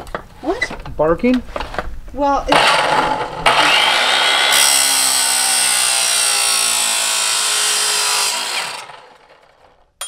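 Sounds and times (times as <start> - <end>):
chop saw cutting steel: 2.5 - 9.6.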